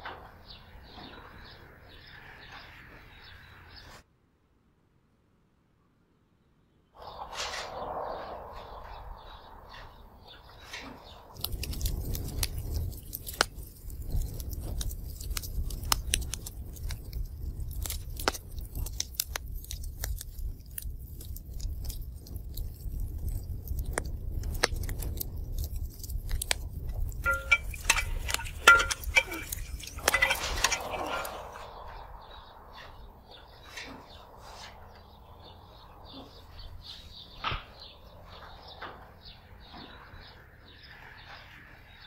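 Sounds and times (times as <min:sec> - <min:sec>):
low rumble: 0:07.0 - 0:17.9, 0:22.0 - 0:38.8
metal ladle knocking pot and bowls: 0:27.2 - 0:31.4.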